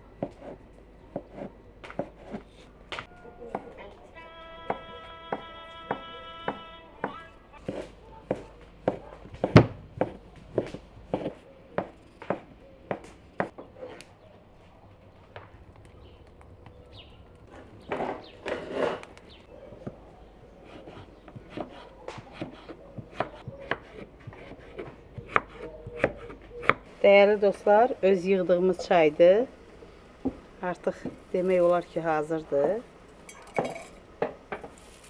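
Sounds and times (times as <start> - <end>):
knife chopping on wooden board: 0.2 - 2.4, 4.7 - 14.0, 20.7 - 26.8.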